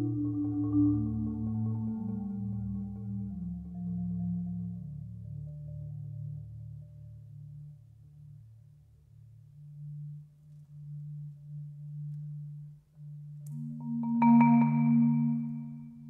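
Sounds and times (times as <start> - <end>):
marimba played with mallets: 0.0 - 4.7, 13.5 - 16.0.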